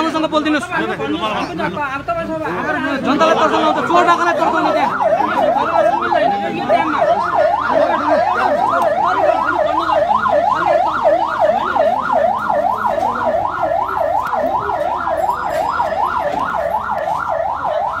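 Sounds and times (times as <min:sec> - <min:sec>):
electronic siren yelping: 0:02.6 - 0:18.0.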